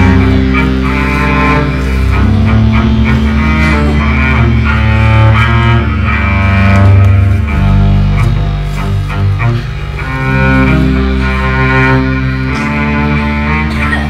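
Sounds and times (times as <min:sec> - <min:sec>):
cello playing: 0:00.0 - 0:14.0.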